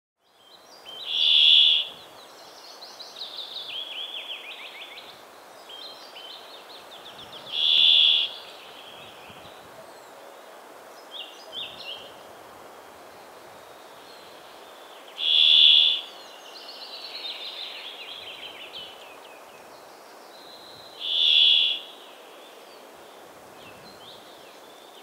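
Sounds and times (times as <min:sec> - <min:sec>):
bird chirps and whistled notes: 0:15.2 - 0:16.1, 0:21.0 - 0:21.9.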